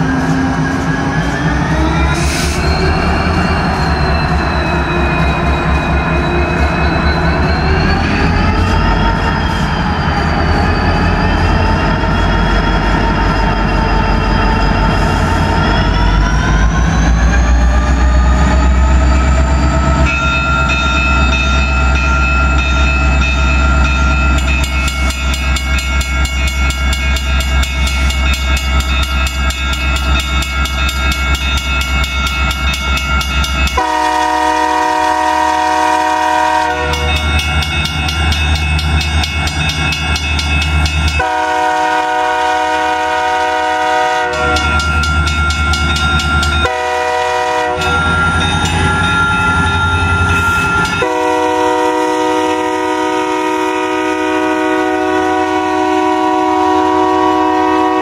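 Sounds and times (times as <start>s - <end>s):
locomotive air horn blasts: 33.8s - 37.1s, 41.2s - 44.7s, 46.6s - 48.0s, 51.0s - 58.0s.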